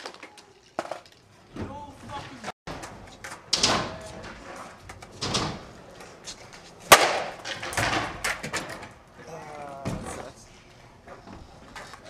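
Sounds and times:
skateboards rolling on wooden ramps: 0:00.0 - 0:12.0
skateboard slap: 0:06.8 - 0:08.8.

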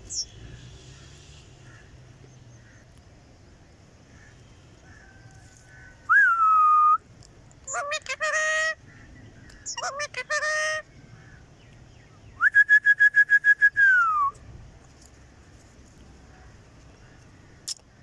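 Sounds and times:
person whistling: 0:06.1 - 0:07.0, 0:12.4 - 0:14.3.

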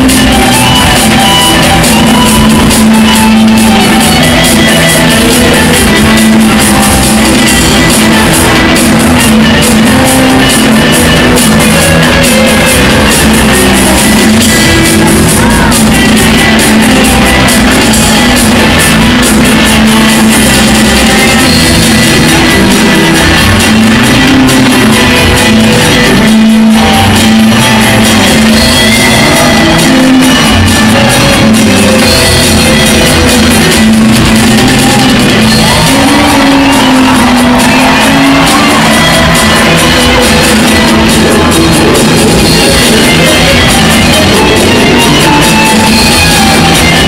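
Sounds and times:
rock music with electric guitar: 0:00.0 - 0:47.0.

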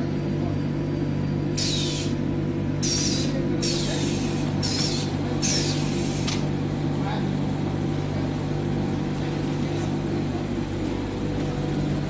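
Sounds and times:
packing machine humming: 0:00.0 - 0:12.0
compressed air hisses: 0:01.6 - 0:02.2, 0:02.8 - 0:06.4.

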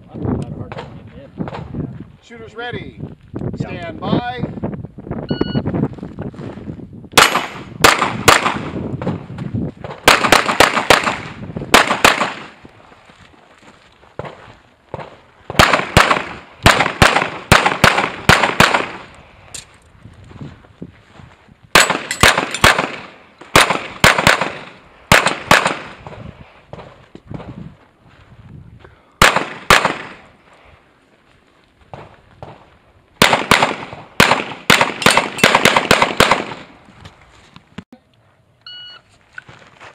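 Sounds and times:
pistol shots: 0:07.2 - 0:08.8, 0:09.9 - 0:12.6, 0:14.9 - 0:19.1, 0:21.7 - 0:27.4, 0:29.2 - 0:30.3, 0:33.2 - 0:36.7.

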